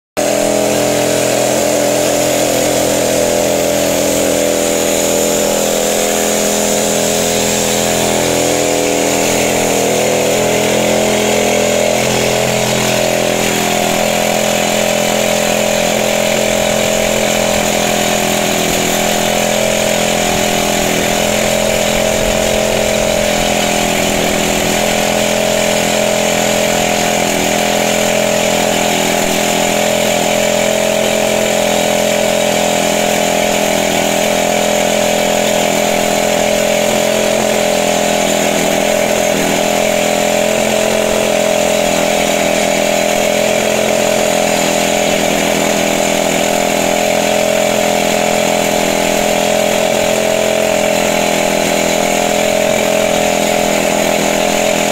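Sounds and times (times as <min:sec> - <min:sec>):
air blowing dust: 0:00.2 - 0:29.8
rock drill drilling into ground: 0:00.2 - 0:54.9.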